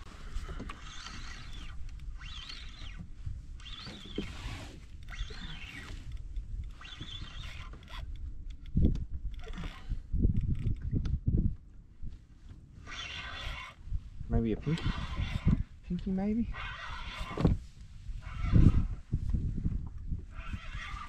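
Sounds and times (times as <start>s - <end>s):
low wind rumble: 0.0s - 21.0s
fishing reel whirring: 0.4s - 8.7s, 9.3s - 10.8s, 12.8s - 13.8s, 14.6s - 15.7s, 16.5s - 17.5s, 20.3s - 21.0s.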